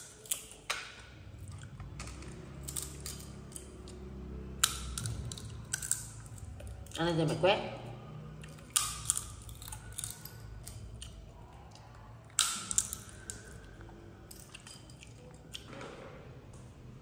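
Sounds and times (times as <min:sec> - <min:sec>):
monkey cracking seed shells: 0:00.0 - 0:04.0, 0:04.6 - 0:07.0, 0:08.5 - 0:11.2, 0:12.3 - 0:15.7.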